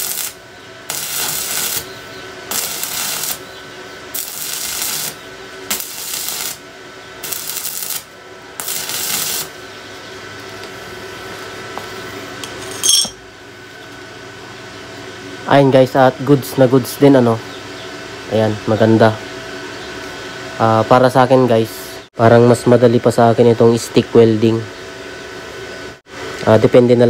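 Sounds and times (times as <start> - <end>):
welding arc crackling: 0.0 - 3.5, 4.1 - 9.6.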